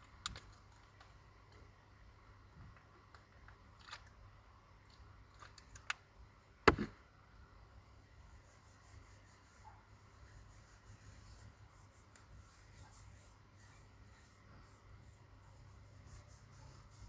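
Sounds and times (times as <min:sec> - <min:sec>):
faint low hum: 0:00.0 - 0:17.0
sharp knock: 0:06.6 - 0:06.9.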